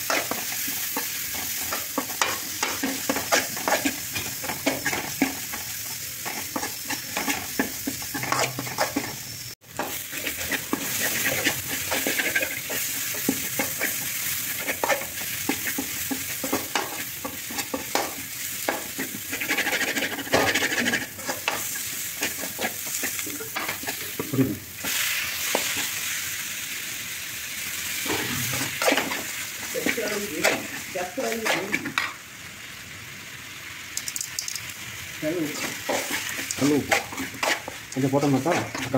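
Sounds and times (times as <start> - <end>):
onions sizzling in oil: 0.0 - 38.9
metal spoon scraping pan: 6.2 - 9.2, 9.8 - 25.9, 28.1 - 32.2, 35.5 - 38.9.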